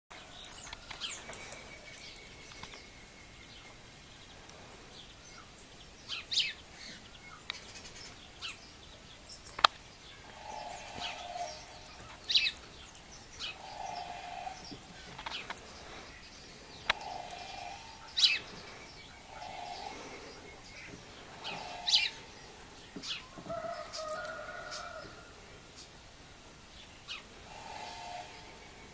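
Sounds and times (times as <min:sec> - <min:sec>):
sparrows chirping: 0:00.2 - 0:25.1
low hooting bird call: 0:10.2 - 0:15.6, 0:16.8 - 0:25.4.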